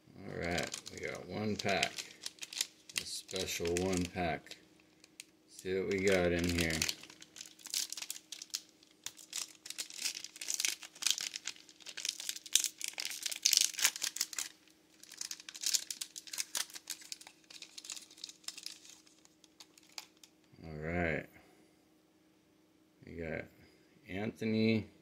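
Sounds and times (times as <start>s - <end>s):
foil wrapper crinkling and tearing: 0.3s - 20.3s.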